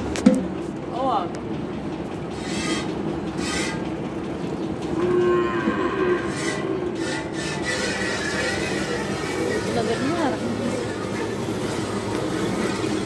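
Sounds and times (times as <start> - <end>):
cow mooing: 5.0 - 8.8.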